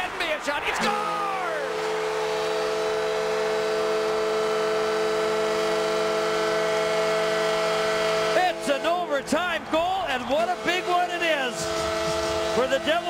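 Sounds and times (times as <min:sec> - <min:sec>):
crowd noise: 0:00.0 - 0:03.0, 0:07.5 - 0:13.0
goal horn chord: 0:00.8 - 0:13.0.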